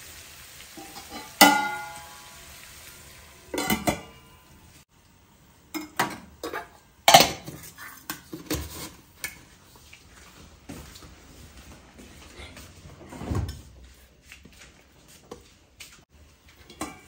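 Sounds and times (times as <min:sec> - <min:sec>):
steel kitchenware knocking and clinking: 0:00.8 - 0:02.0, 0:03.6 - 0:04.3, 0:05.7 - 0:09.4, 0:16.6 - 0:17.0
steel lid clanging and ringing: 0:00.8 - 0:02.1, 0:03.5 - 0:04.4.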